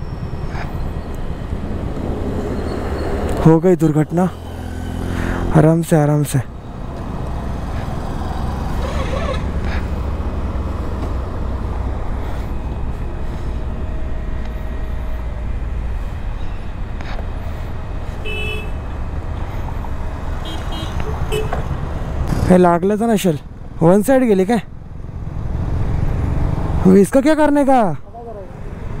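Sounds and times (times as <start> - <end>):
road traffic rumble: 0.0 - 29.0
wind: 0.0 - 29.0
vehicle horn toots: 18.2 - 18.8, 20.4 - 21.6.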